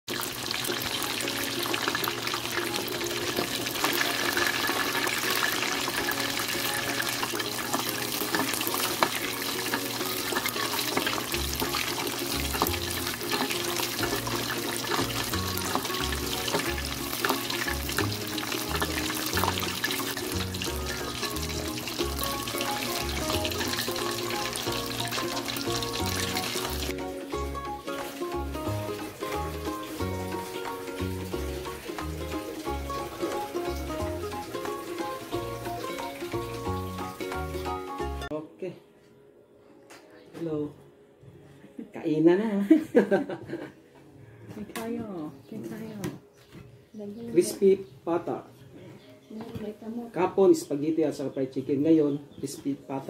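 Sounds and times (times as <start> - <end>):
meat sizzling in hot oil: 0.1 - 37.9
background music: 0.1 - 44.4
bass line: 17.7 - 30.4.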